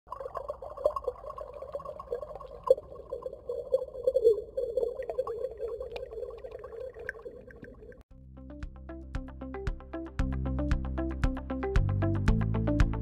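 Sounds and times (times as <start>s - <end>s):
water bubbling and gurgling: 0.1s - 8.1s.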